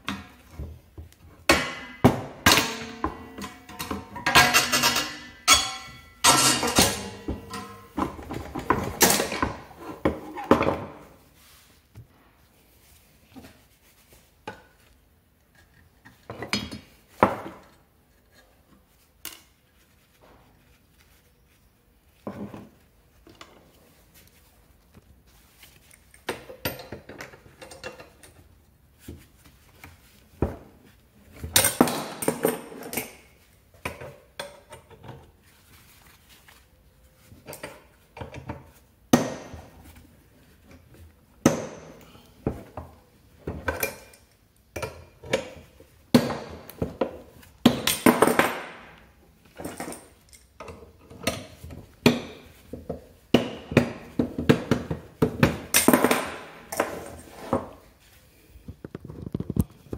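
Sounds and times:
metallic clinks and knocks of tools: 2.4 - 8.0, 49.5 - 51.5, 55.7 - 57.4.

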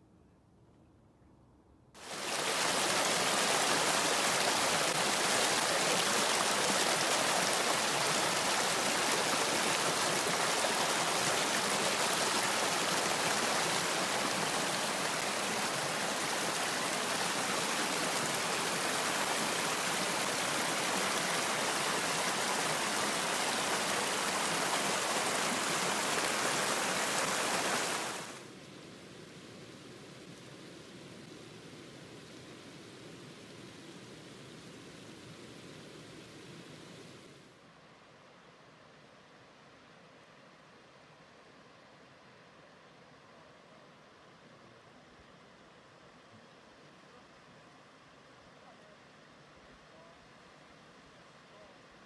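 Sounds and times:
creek water rushing over rocks: 2.0 - 28.5.

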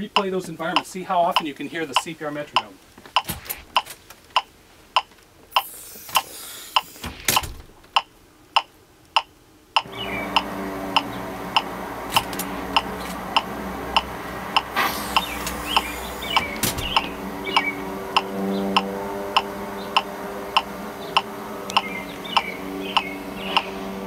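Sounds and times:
metronome ticking: 0.0 - 5.1, 7.9 - 14.7, 15.8 - 23.8
background noise with low hum: 0.0 - 24.0.

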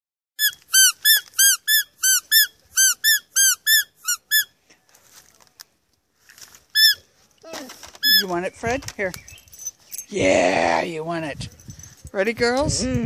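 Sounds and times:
squeaky dog toy squeaking: 0.4 - 4.5, 6.7 - 7.0, 8.0 - 8.4.

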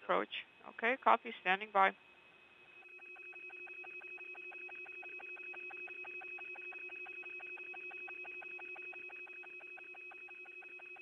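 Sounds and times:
fast pulsing buzz: 2.4 - 11.0
steady electronic tones: 2.4 - 11.0.

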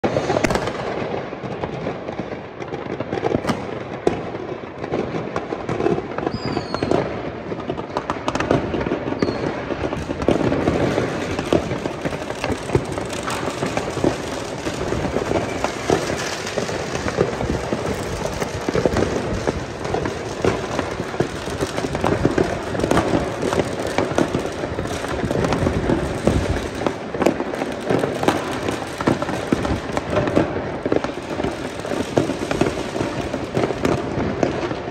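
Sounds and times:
fireworks bangs and crackles: 0.0 - 34.9
firework whistle: 6.2 - 7.2, 9.0 - 34.8.

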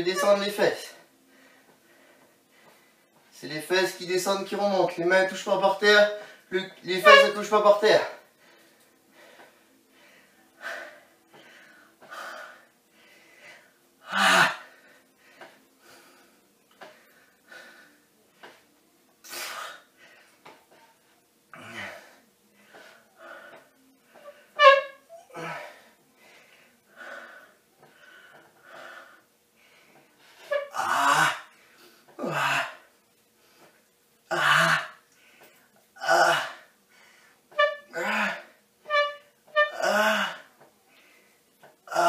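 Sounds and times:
man breathing hard: 25.3 - 30.5
man groaning with strain: 32.2 - 32.8.

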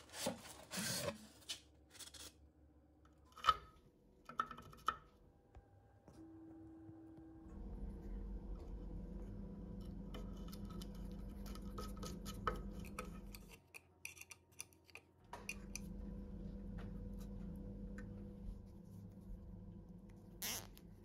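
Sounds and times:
steady low hum: 5.1 - 13.7, 15.2 - 21.0.

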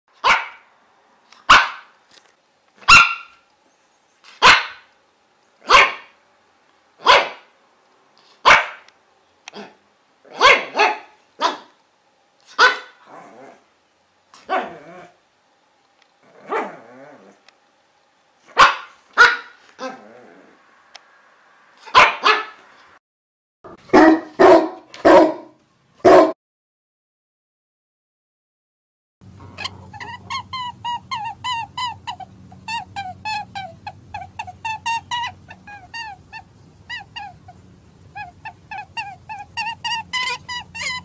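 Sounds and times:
dog barking: 0.2 - 0.7, 1.5 - 1.9, 2.8 - 3.4, 4.4 - 4.9, 5.6 - 6.2, 7.0 - 7.5, 8.4 - 8.9, 9.5 - 11.8, 12.5 - 13.0, 14.4 - 14.8, 16.5 - 16.8, 18.5 - 20.0, 21.8 - 22.6, 23.8 - 26.4.

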